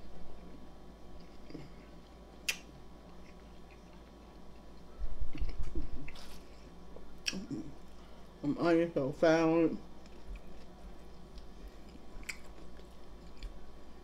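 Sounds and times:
chewing: 1.2 - 8.0, 10.0 - 13.6
wet mouth clicks: 2.4 - 2.7.

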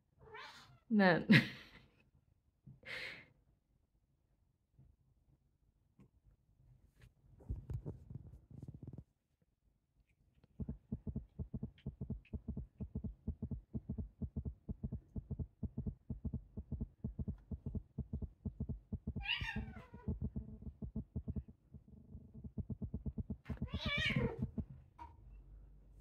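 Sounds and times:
fast low thumping: 10.6 - 24.8
cat meowing: 19.2 - 20.0.

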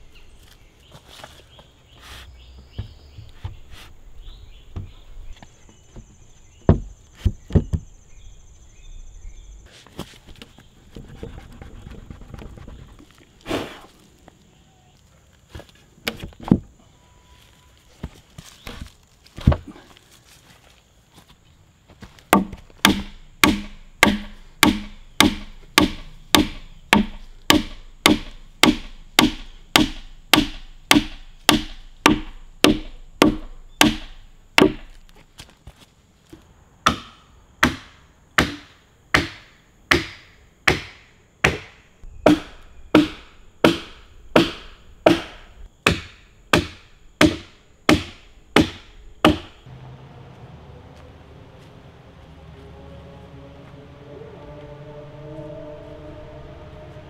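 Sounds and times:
wooden mallet striking peg: 22.3 - 34.9.

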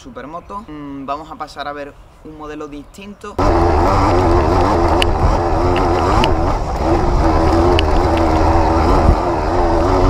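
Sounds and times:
off-road motorcycle engine: 3.4 - 10.0
wind rumble on microphone: 3.4 - 10.0
sharp ticks: 4.6 - 8.6.

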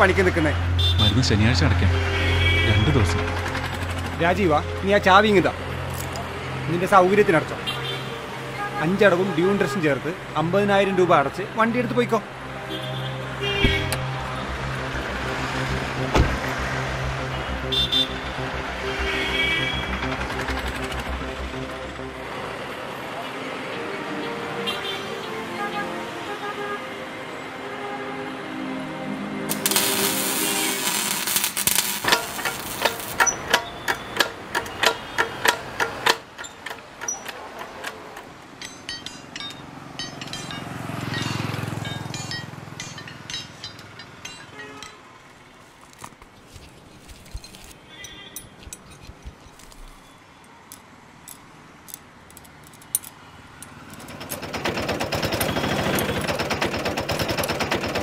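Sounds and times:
auto-rickshaw engine putter: 2.2 - 6.4, 17.8 - 22.1, 29.5 - 50.0, 50.7 - 58.0
metallic clicks and taps: 32.8 - 40.6, 48.0 - 54.4.

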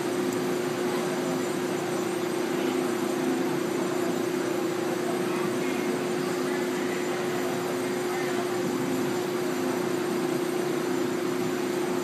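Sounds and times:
train electrical hum: 0.0 - 12.0.

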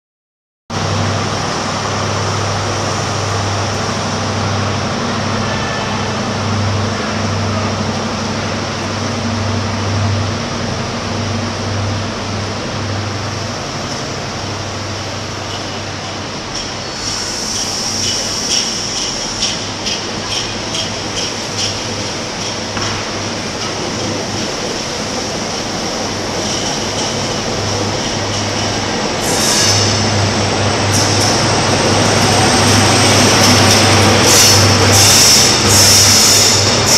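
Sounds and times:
diesel train droning: 0.7 - 36.9
train wheels clicking over rail joints: 16.5 - 30.1.

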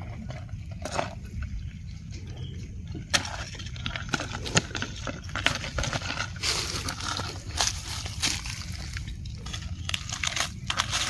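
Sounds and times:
dry leaves crackling: 4.2 - 11.0.

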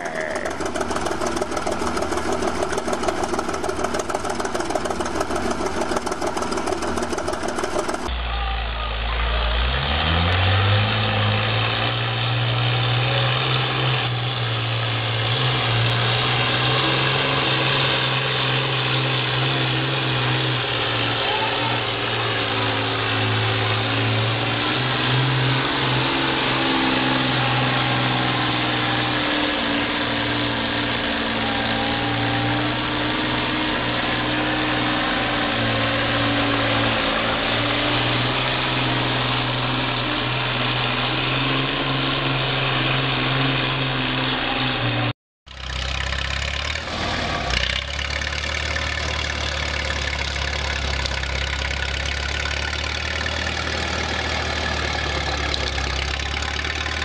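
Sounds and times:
bulldozer engine clattering: 0.0 - 8.1, 45.6 - 57.0
garden tractor engine revving: 0.0 - 8.1, 15.9 - 57.0.

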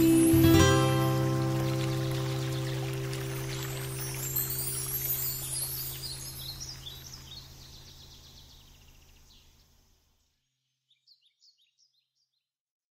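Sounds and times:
small birds chirping: 0.0 - 12.5.

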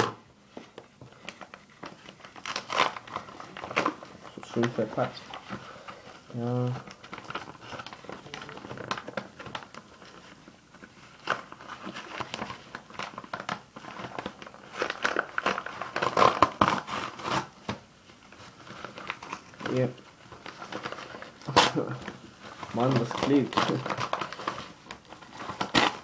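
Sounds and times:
parcel wrapping crinkling and tearing: 0.0 - 26.0.

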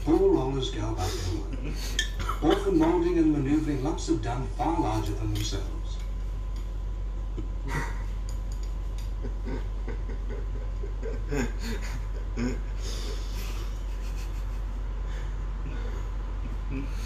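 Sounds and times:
low steady hum: 0.0 - 17.0
men stifling laughter: 1.0 - 3.0, 7.1 - 8.4, 9.0 - 17.0.

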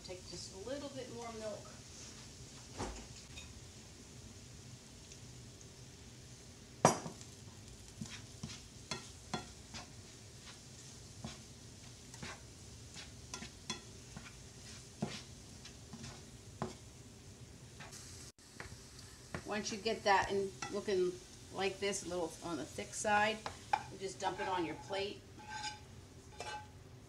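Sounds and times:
faint sizzle: 0.0 - 27.0
nylon spoon scraping a skillet: 7.9 - 16.9, 23.3 - 26.8
spoon clacking on pan: 8.0 - 10.0, 13.0 - 14.3, 23.4 - 26.8.

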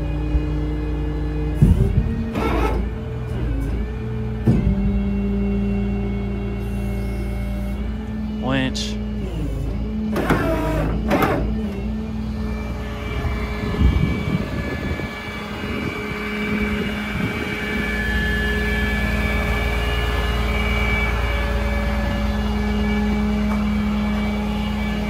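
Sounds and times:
diesel engine running: 0.0 - 25.0
hydraulic system whine: 0.0 - 25.0
low knocks: 4.4 - 5.2.

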